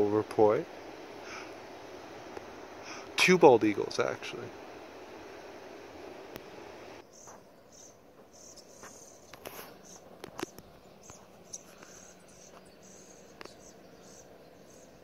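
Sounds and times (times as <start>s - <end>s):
steady rushing noise: 0.0s - 7.0s
insects chirping: 0.0s - 15.0s.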